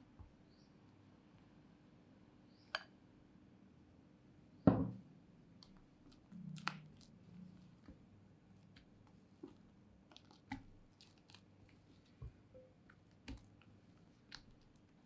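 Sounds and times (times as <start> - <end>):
glass bowl knocking on wooden table: 4.7 - 5.0.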